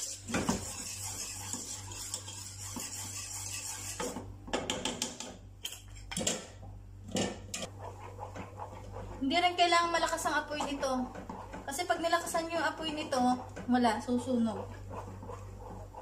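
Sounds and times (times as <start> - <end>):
wooden spoon stirring in a pot: 0.0 - 4.4, 7.6 - 16.0
steady low hum: 5.5 - 16.0.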